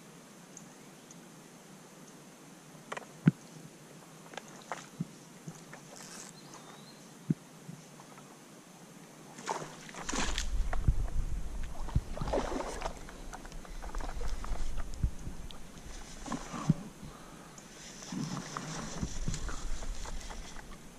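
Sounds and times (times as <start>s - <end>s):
water sloshing and splashing: 9.3s - 20.9s
low rumble of movement: 9.9s - 20.9s.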